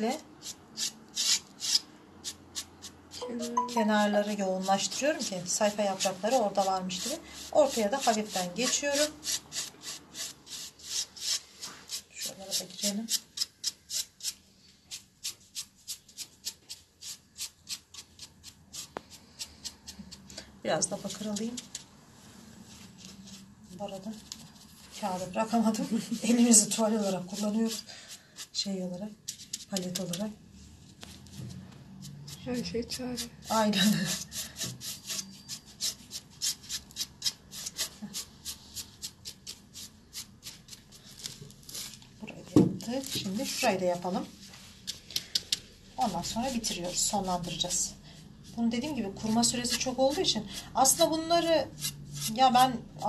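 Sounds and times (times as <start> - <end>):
paintbrush scrubbing: 0.4 - 19.4, 24.6 - 28.6
scratchy paintbrush strokes: 20.9 - 28.7.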